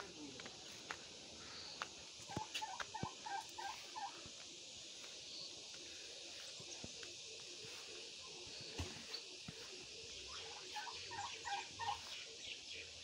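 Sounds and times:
faint hiss: 0.0 - 13.0
turkey clucking: 2.2 - 4.2, 10.2 - 12.2.

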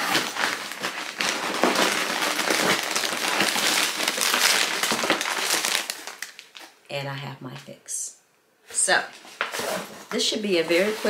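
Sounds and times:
packaging crinkling and rustling: 0.0 - 6.8, 9.1 - 11.0.

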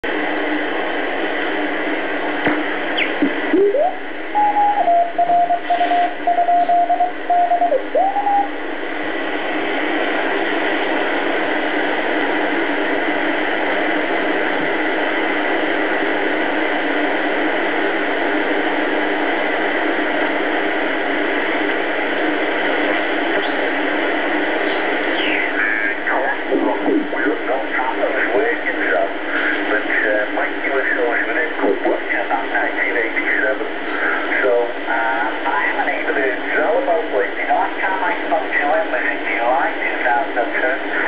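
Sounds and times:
shortwave static hiss: 0.0 - 41.0
morse code tone: 3.6 - 8.5.

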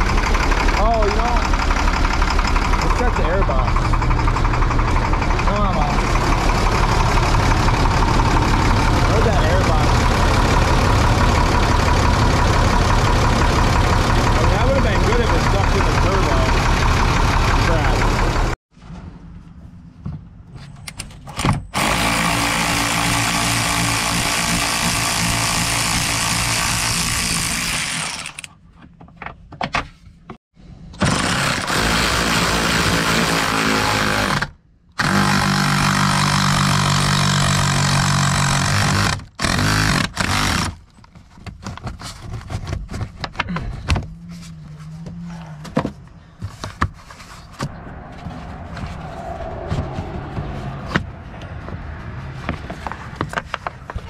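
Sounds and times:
diesel truck engine running: 0.0 - 18.6
loud rushing noise: 47.6 - 53.1.

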